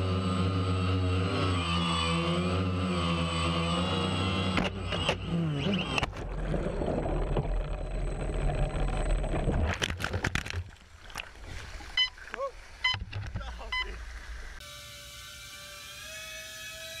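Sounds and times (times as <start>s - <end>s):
drone motors humming: 0.0s - 10.6s
muffled churning water and bubbles: 6.0s - 14.6s.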